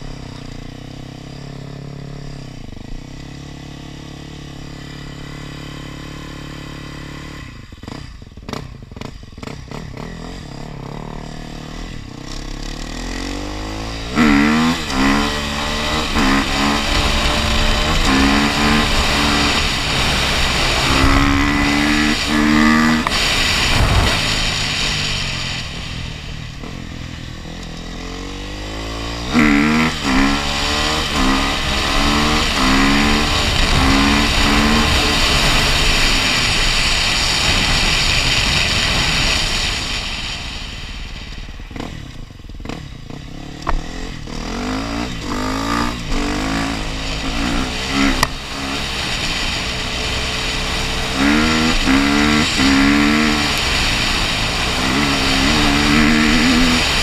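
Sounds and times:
motorcycle engine accelerating: 0.0s - 57.0s
wind rushing over camera: 14.0s - 26.8s.

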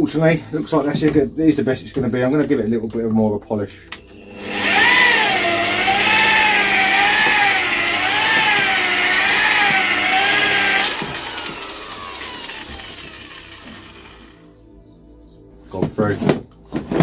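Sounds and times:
electric polisher motor whining: 4.0s - 14.4s.

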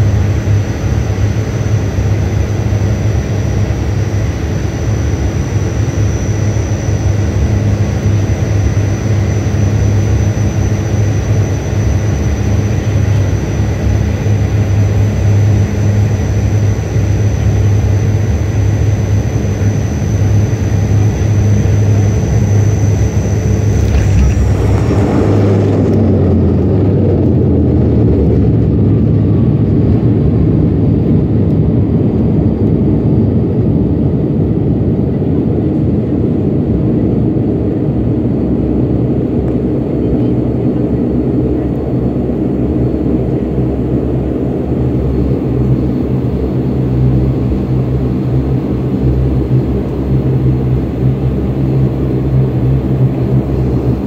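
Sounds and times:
wheels rumbling on runway: 0.0s - 32.4s
high engine whine: 0.0s - 54.0s
turboprop engines droning: 0.0s - 54.0s.

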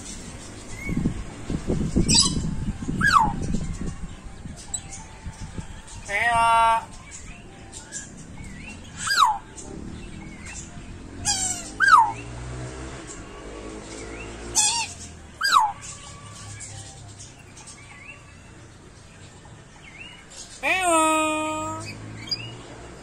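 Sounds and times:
animal squeaky calls: 11.2s - 12.2s, 14.5s - 16.7s.

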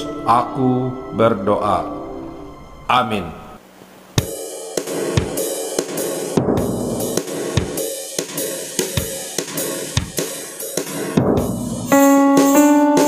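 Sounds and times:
sustained chords: 0.0s - 3.6s
drum kit with cymbals: 4.2s - 13.0s.

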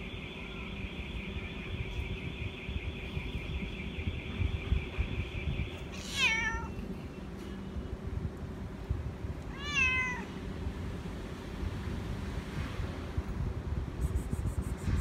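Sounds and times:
cat meowing: 6.0s - 6.8s, 9.5s - 10.3s.

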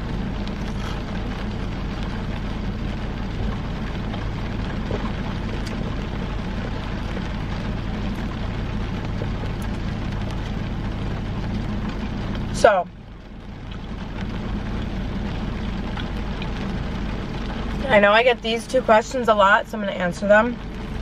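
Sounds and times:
car low hum: 0.0s - 21.0s
rain on car roof: 0.0s - 21.0s.

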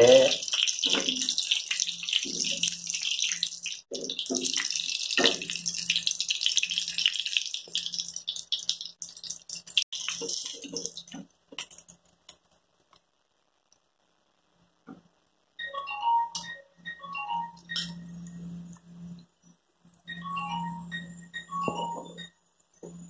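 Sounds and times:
oil sizzling with crackling pops: 0.0s - 15.6s.

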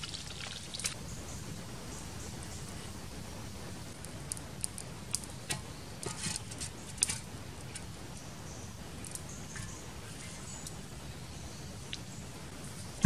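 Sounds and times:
charcoal crackling and popping: 0.0s - 8.1s
low steady background: 0.0s - 13.0s.

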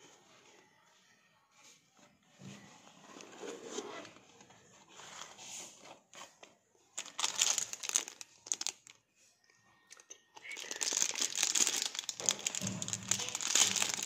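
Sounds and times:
plastic bag crinkling: 7.0s - 9.0s, 10.4s - 14.0s.

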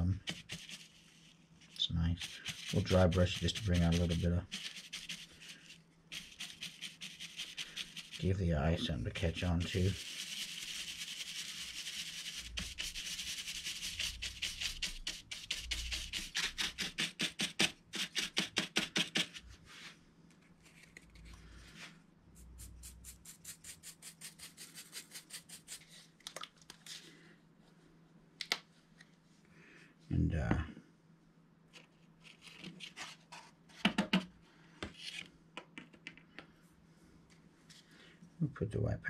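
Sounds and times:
paintbrush bristles scrubbing: 0.2s - 17.0s, 22.4s - 26.0s.

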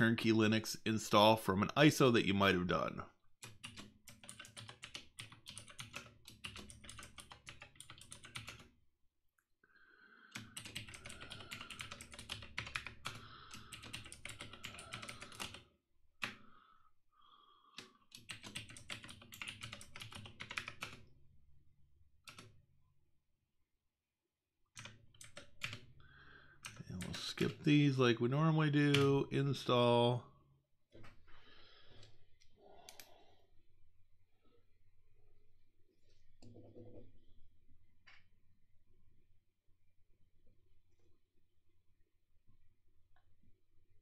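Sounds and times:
typing on computer keyboard: 3.4s - 8.8s, 10.3s - 16.4s, 17.7s - 21.1s, 22.2s - 22.6s, 24.8s - 25.9s, 26.6s - 27.2s, 28.9s - 29.1s.

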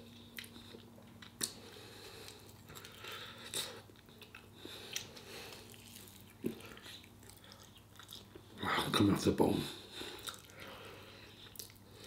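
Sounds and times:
person biting and chewing meat: 0.1s - 8.5s, 10.1s - 10.8s.

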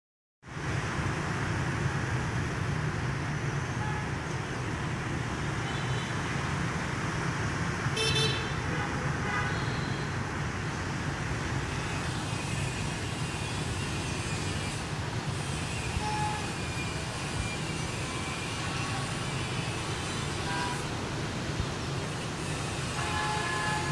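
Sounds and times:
motorbikes and cars passing: 0.5s - 23.9s
horn toots: 8.0s - 10.1s, 23.0s - 23.9s.

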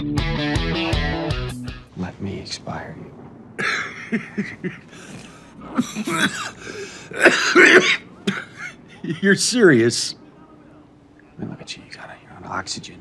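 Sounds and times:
man coughing: 3.6s - 9.0s.

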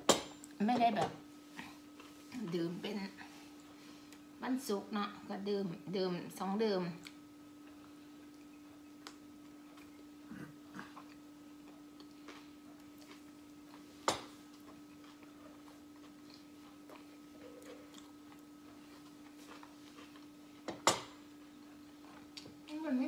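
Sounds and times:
steady low hum: 0.0s - 23.0s
people chewing: 1.5s - 2.3s, 7.0s - 20.7s.

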